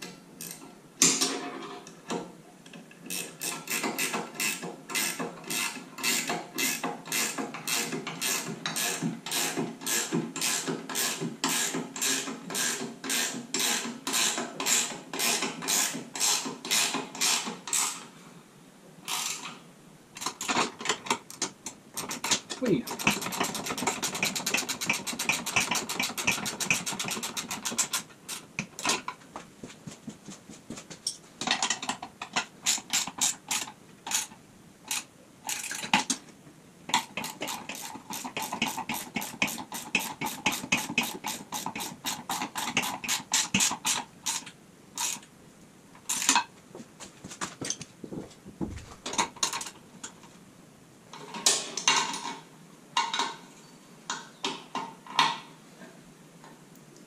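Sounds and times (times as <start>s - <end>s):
ratchet wrench clicking: 0.4s - 0.6s, 3.1s - 18.0s, 32.6s - 36.0s, 37.0s - 45.2s.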